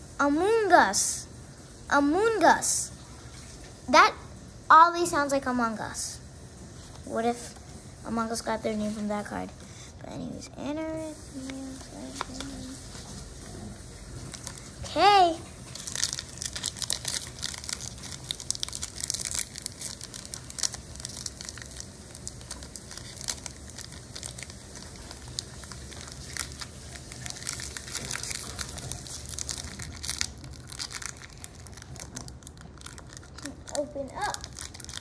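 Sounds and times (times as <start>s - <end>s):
foil wrapper crinkling: 11.3s - 35.0s.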